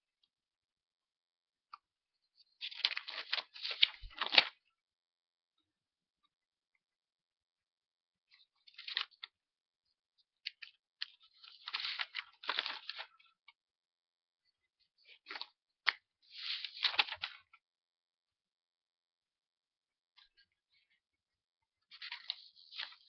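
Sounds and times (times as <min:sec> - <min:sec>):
paper cards rustling: 0:02.4 - 0:04.6, 0:10.4 - 0:13.3, 0:15.1 - 0:17.5, 0:21.9 - 0:23.0.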